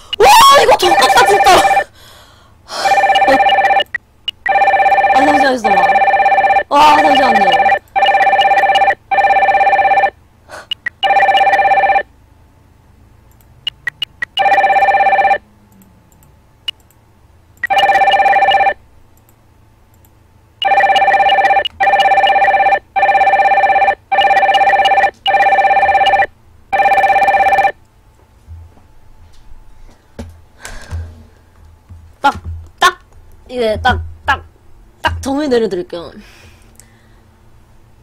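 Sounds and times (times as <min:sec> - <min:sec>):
telephone ringing: 0:00.7 - 0:01.9, 0:02.8 - 0:10.2, 0:10.9 - 0:12.1, 0:14.2 - 0:15.4, 0:17.6 - 0:18.8, 0:20.6 - 0:27.8.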